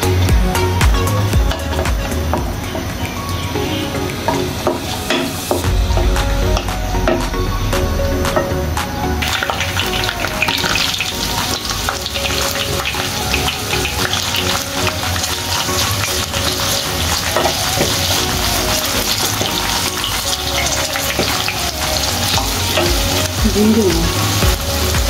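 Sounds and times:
onions sizzling in hot oil: 9.2s - 25.0s.

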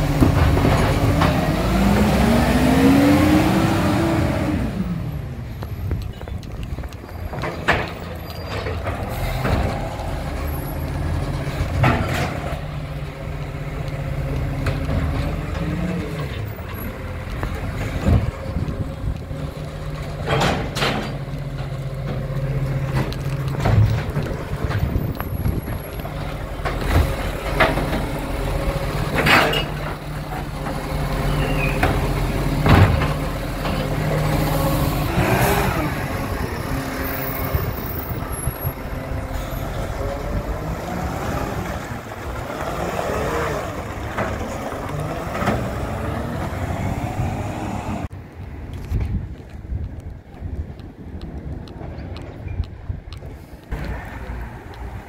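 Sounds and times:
diesel engine running: 0.0s - 48.1s.

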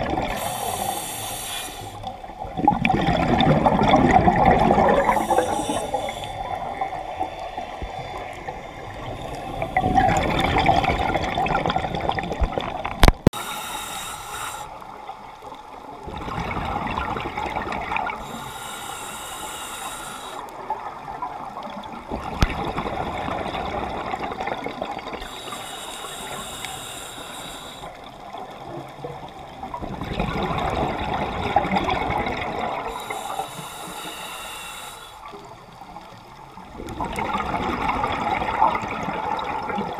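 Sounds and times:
bubbling exhaled air: 0.0s - 7.0s, 8.9s - 14.9s
regulator inhale hiss: 0.2s - 2.3s, 5.0s - 6.8s, 13.3s - 15.0s, 18.2s - 20.7s, 25.1s - 28.1s, 32.8s - 35.4s.

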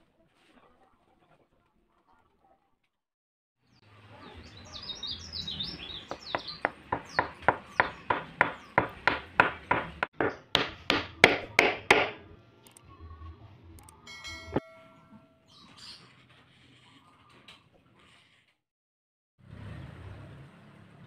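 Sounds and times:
birds chirping: 3.7s - 12.1s.

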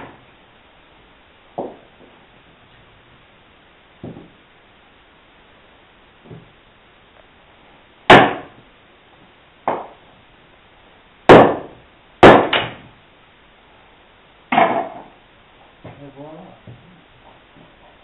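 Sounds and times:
wood splitting crack: 8.1s - 8.6s, 11.3s - 12.9s.

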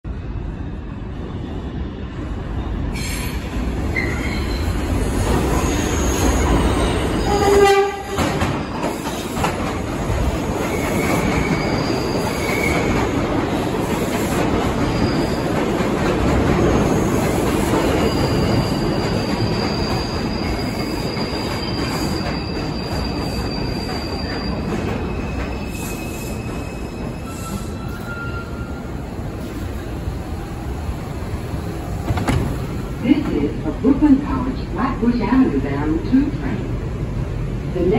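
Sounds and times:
subway train wheels rumbling: 0.0s - 37.9s
train horn blast: 7.2s - 8.3s
high wheel squeal: 10.7s - 13.0s, 18.0s - 29.2s.

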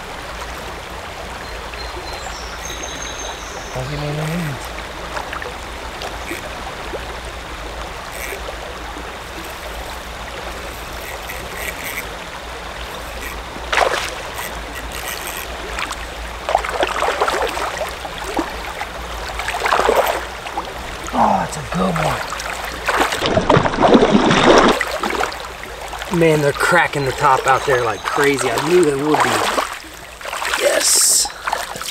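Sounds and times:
creek water running: 0.0s - 31.9s
sharp water splashes: 7.8s - 31.9s.

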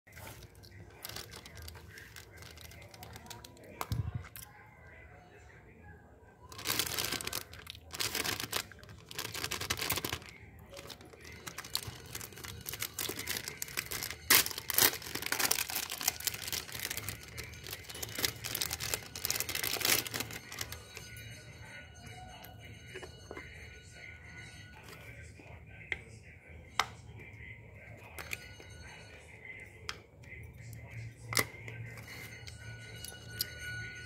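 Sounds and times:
plastic pouch crinkling and tearing: 0.1s - 4.1s, 6.5s - 20.8s.

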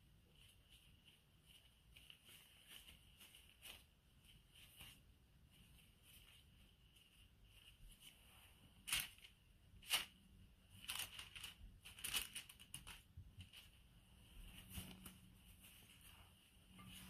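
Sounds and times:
gloves and baking paper crinkling: 0.0s - 17.0s.

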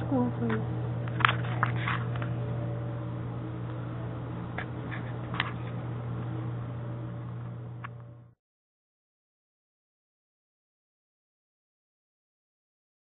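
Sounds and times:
low room hum: 0.0s - 8.4s.

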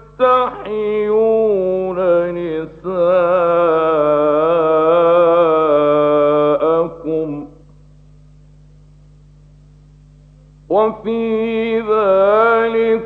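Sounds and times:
man chanting melodically: 0.0s - 7.6s, 10.7s - 13.0s
steady low hum: 0.0s - 13.0s.

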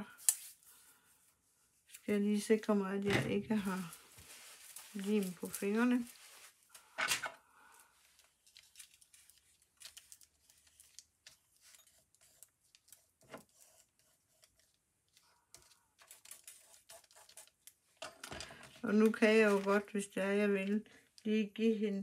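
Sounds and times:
card and paper rustling: 3.4s - 7.3s, 8.0s - 20.8s.

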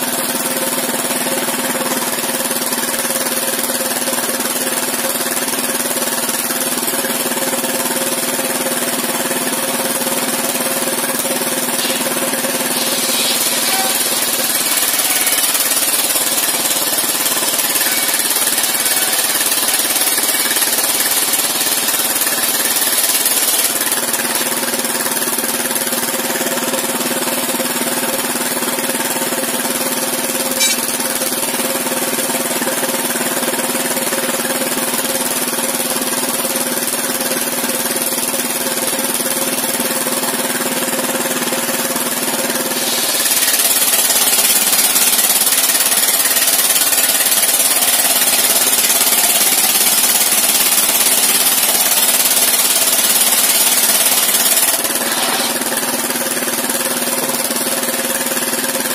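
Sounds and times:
sawmill engine knocking hum: 0.0s - 58.9s
saw ripping timber: 8.4s - 26.5s, 40.5s - 58.9s.

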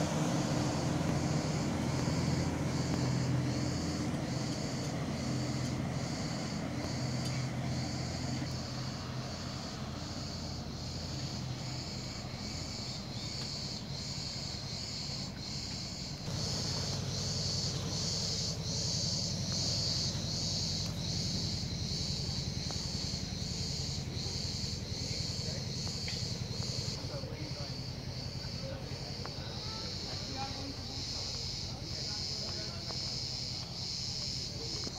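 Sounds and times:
cicadas buzzing: 0.0s - 34.9s.

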